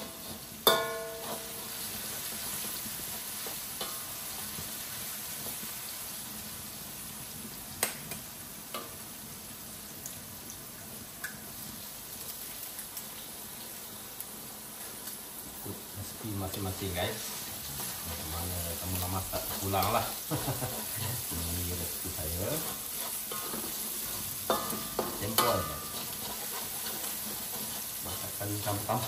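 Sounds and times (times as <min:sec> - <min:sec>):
food sizzling in a pan: 0:00.0 - 0:29.0
ringing metal clang: 0:00.7 - 0:01.4
spatula scraping a pan: 0:01.1 - 0:04.0, 0:16.5 - 0:29.0.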